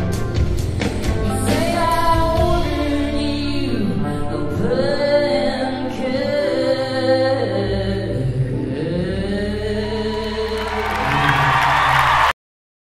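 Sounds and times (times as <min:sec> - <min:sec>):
woman singing long notes: 0:01.3 - 0:11.5.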